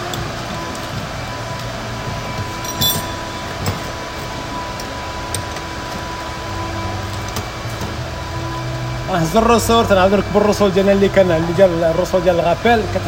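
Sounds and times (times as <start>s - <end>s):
faint high whine: 0.0s - 13.0s
workshop hum: 0.0s - 13.0s
light metallic clinks: 2.6s - 3.8s.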